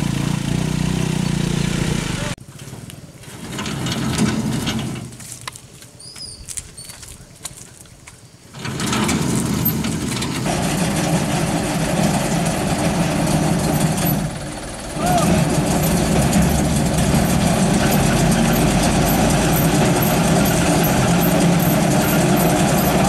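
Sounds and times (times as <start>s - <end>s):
truck engine idling: 9.4s - 23.0s.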